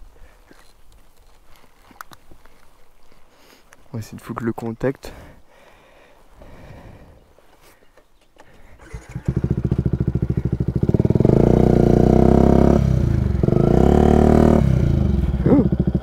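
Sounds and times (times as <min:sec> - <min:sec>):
motorcycle engine idling: 0:08.5 - 0:16.0
motorcycle engine revving: 0:08.8 - 0:16.0.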